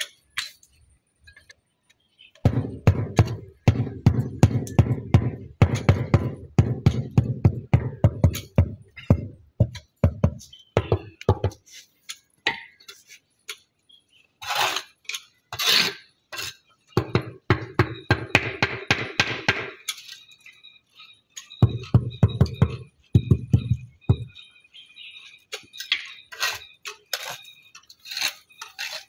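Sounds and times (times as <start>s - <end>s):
trowel scraping: 14.4s - 16.8s, 25.4s - 29.0s.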